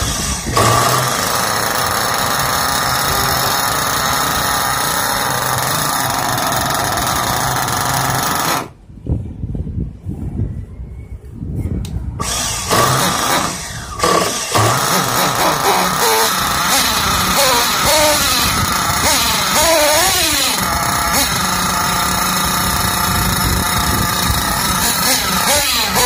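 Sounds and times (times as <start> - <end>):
small nitro engine running: 0.0 - 8.8, 12.2 - 26.0.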